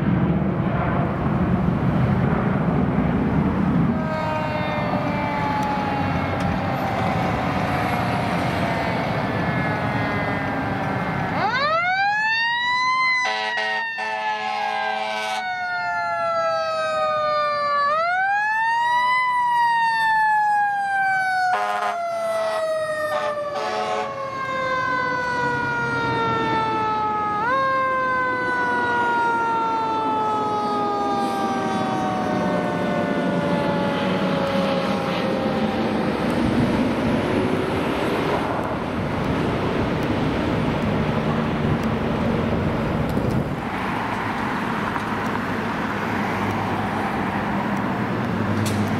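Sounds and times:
truck engine rumble: 0:00.0 - 0:13.2, 0:15.5 - 0:48.9
air horn blasts: 0:03.9 - 0:06.4, 0:13.2 - 0:15.5, 0:21.5 - 0:24.2
mechanical siren wailing: 0:03.9 - 0:39.1.

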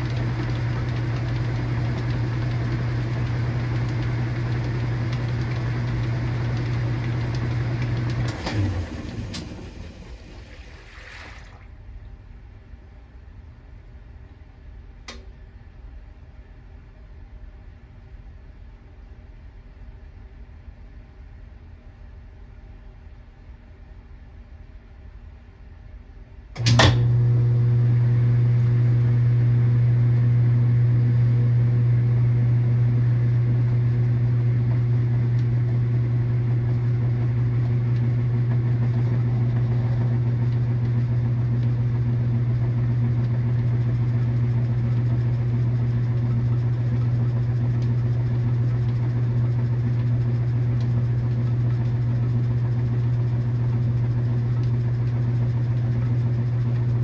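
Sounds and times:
washing machine motor humming: 0:00.0 - 0:12.3, 0:26.6 - 0:57.0
washing machine switch click: 0:26.6 - 0:27.1.

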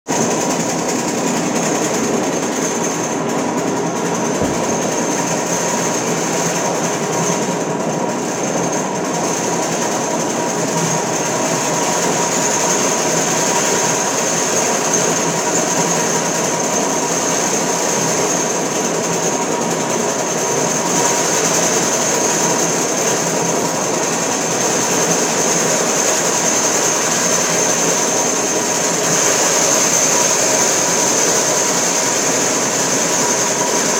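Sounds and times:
scabbler hammering concrete: 0:03.1 - 0:05.6.

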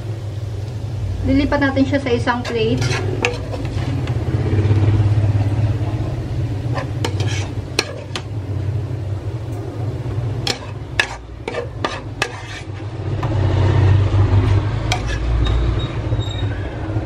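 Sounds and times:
spatula scraping a pan: 0:02.2 - 0:04.3, 0:06.6 - 0:08.3, 0:10.4 - 0:13.4, 0:14.5 - 0:16.0.

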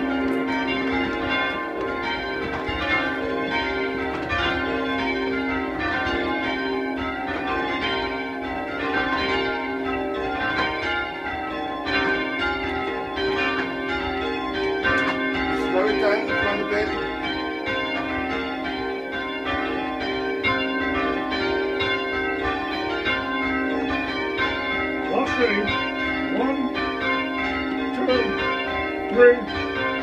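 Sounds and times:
church bells ringing: 0:00.0 - 0:30.0.

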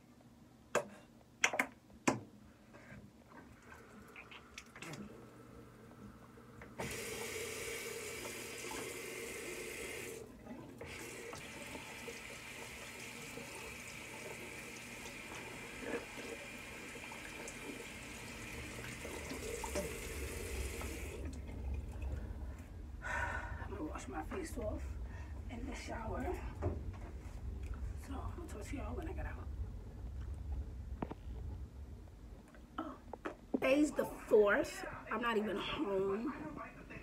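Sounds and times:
water running from a tap: 0:06.8 - 0:22.2.

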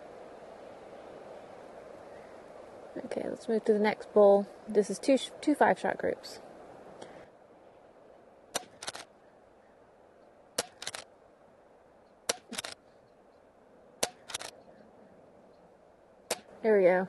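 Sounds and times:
air rifle shots: 0:08.5 - 0:09.1, 0:10.6 - 0:11.1, 0:12.3 - 0:12.8, 0:14.0 - 0:14.6, 0:16.3 - 0:16.6
soft clicks: 0:08.6 - 0:09.1, 0:10.2 - 0:11.1, 0:12.0 - 0:15.7.

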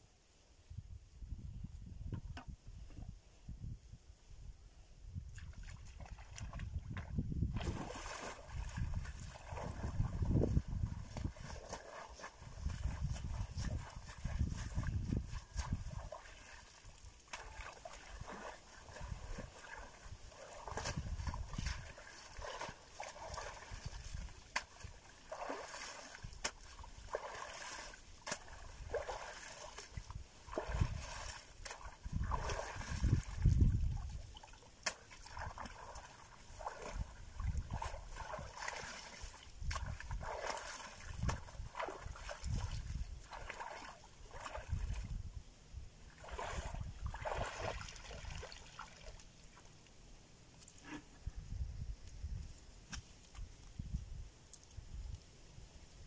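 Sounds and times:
muddy water splashing: 0:05.3 - 0:45.3, 0:46.0 - 0:49.8.

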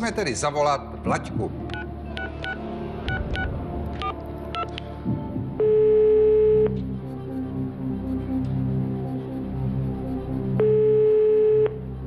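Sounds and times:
keypad dial beeps: 0:01.7 - 0:04.7
telephone ringing tone: 0:05.6 - 0:06.8, 0:10.6 - 0:11.8.

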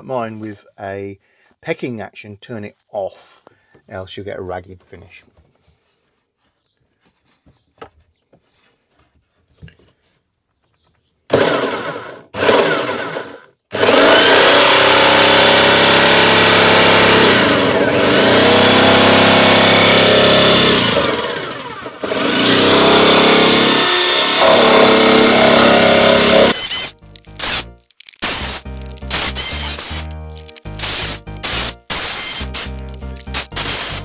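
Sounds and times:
jigsaw cutting plastic: 0:11.3 - 0:34.0.

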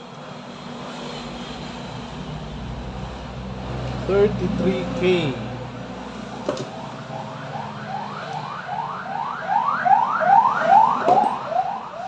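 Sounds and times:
electronic siren whooping: 0:06.7 - 0:12.0.

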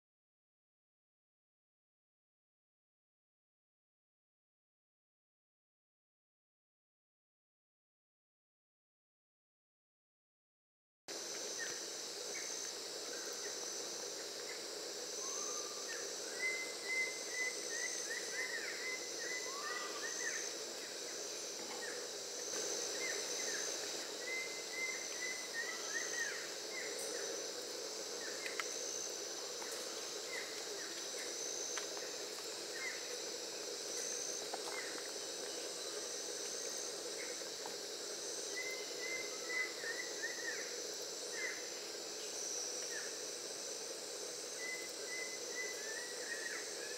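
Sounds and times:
high insect drone: 0:11.1 - 0:46.9.

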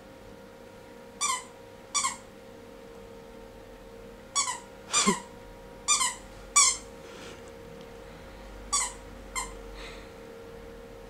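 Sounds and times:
squeaky toy squeaks: 0:01.2 - 0:02.2, 0:04.4 - 0:05.2, 0:05.9 - 0:06.8, 0:08.7 - 0:09.6.

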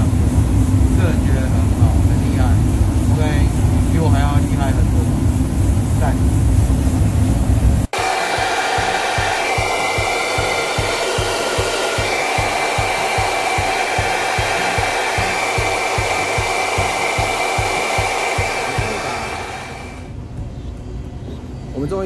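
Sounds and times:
spray gun hissing: 0:07.8 - 0:20.1.

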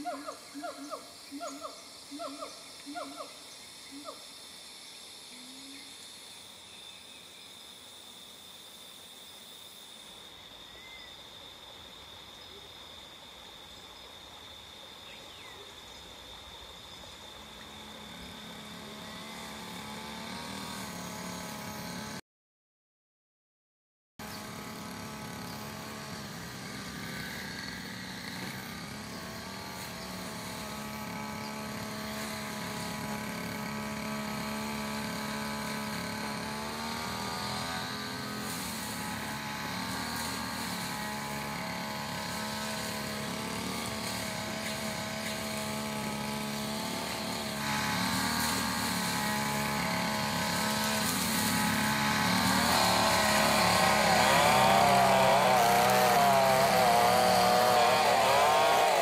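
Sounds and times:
engine humming: 0:24.2 - 0:59.0.

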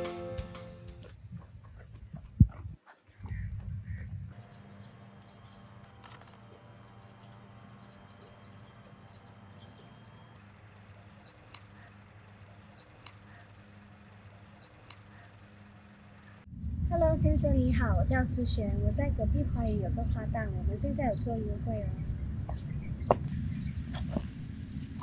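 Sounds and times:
low steady hum: 0:00.8 - 0:25.0
insects: 0:01.0 - 0:16.8
bird chirps: 0:02.8 - 0:16.5, 0:21.0 - 0:25.0.

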